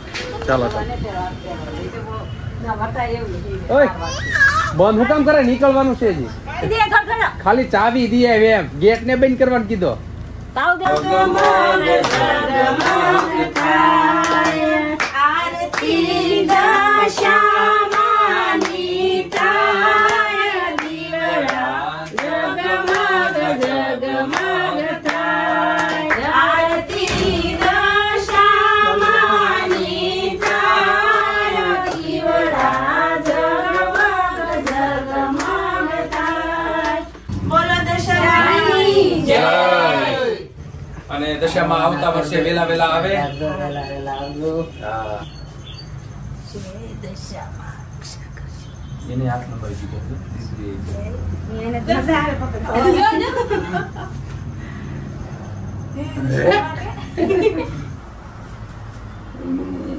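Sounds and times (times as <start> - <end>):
hand claps: 10.9 - 37.0.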